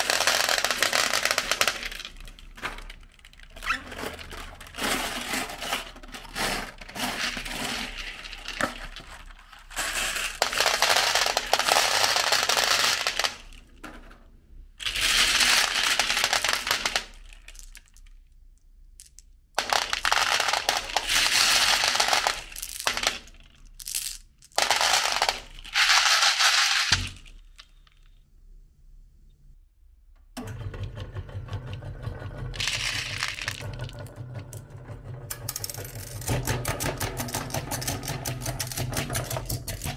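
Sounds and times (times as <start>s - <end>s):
glass marbles clattering: 19.6s - 27.8s, 32.6s - 33.9s.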